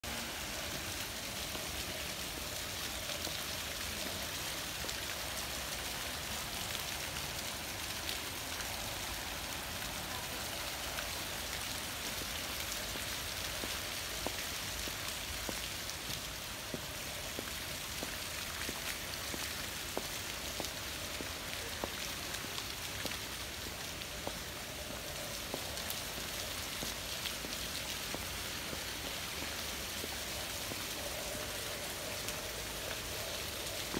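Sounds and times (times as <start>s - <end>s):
fountain water splashing: 0.0s - 33.9s.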